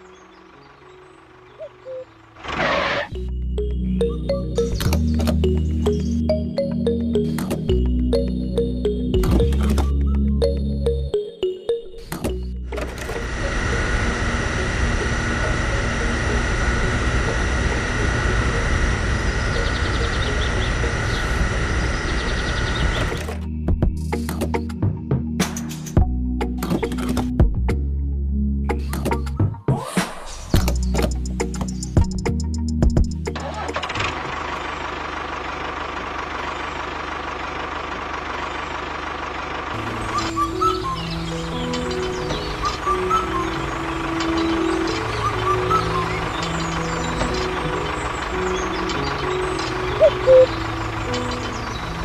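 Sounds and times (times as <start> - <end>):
music: 0.0 - 2.3, 3.1 - 33.9, 39.8 - 52.0
fuel pump motor humming: 12.0 - 23.4, 33.8 - 52.0
tractor engine chugging: 12.3 - 23.3, 33.2 - 52.0
high whine: 12.8 - 23.1, 50.0 - 50.8.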